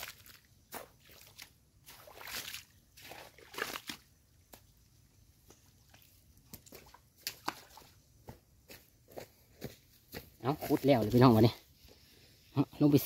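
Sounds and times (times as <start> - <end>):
hoe squelching in wet mud: 0.0 - 4.1.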